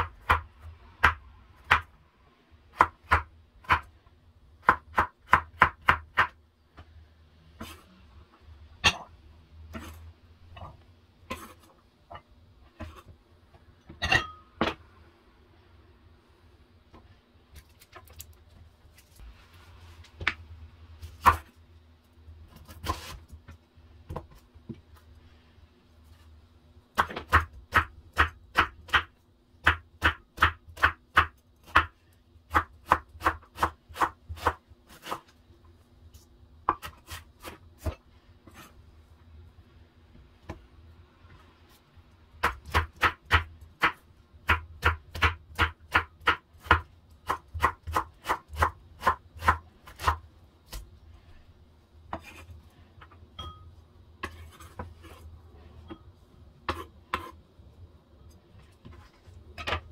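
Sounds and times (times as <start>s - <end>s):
knife chopping on wooden board: 36.7s - 38.7s, 42.4s - 50.8s, 52.1s - 52.4s, 56.6s - 57.4s.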